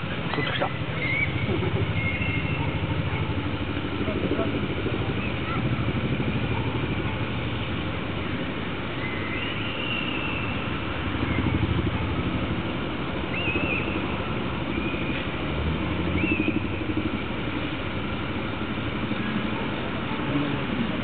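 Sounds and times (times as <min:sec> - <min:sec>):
low engine rumble: 0:00.0 - 0:21.0
high whistled bird calls: 0:00.3 - 0:02.7, 0:09.0 - 0:11.7, 0:13.2 - 0:15.3, 0:16.0 - 0:16.8.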